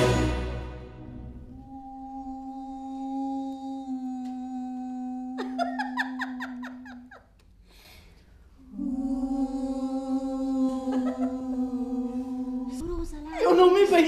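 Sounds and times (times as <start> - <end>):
higher voice warbling: 1.5 - 5.5
voices humming held note: 8.7 - 14.0.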